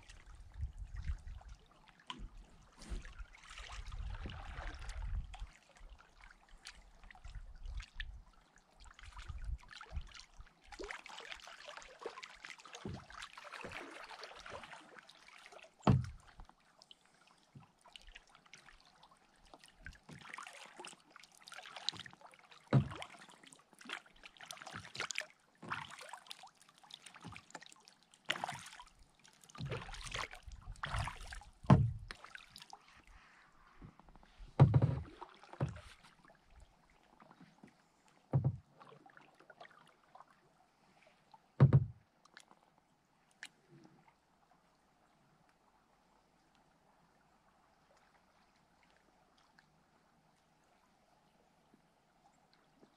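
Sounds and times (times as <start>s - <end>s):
paddle splashing in water: 0.0s - 8.2s, 8.9s - 42.5s
paddle knocks: 15.9s - 16.2s, 22.7s - 23.0s, 31.6s - 32.2s, 33.8s - 36.1s, 38.3s - 38.7s, 41.6s - 42.0s.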